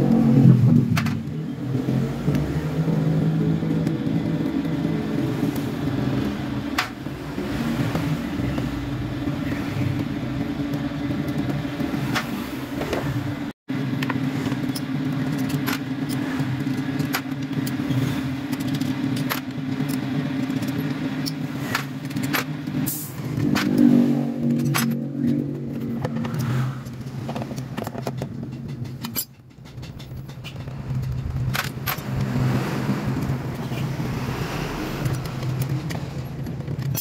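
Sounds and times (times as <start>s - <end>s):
hand tools clicking on metal: 35.0s - 37.0s.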